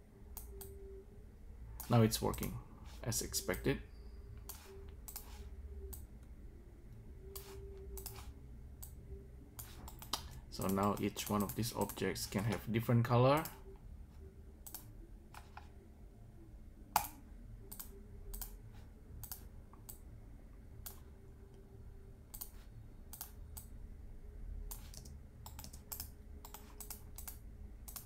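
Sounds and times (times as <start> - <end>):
computer mouse and keyboard clicks: 4.4 - 6.1, 7.3 - 9.0, 9.6 - 12.7, 14.6 - 15.7, 19.2 - 20.0, 22.3 - 23.7, 24.7 - 28.0.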